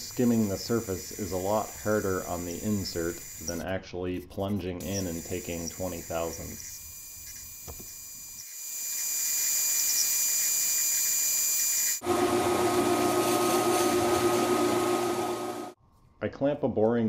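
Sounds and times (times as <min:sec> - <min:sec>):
metal lathe turning steel: 0:11.9 - 0:15.8.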